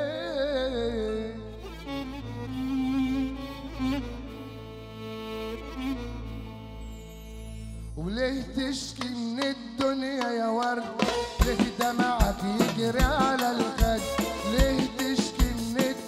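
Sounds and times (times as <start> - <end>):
drums and hand percussion: 9.0 - 16.0.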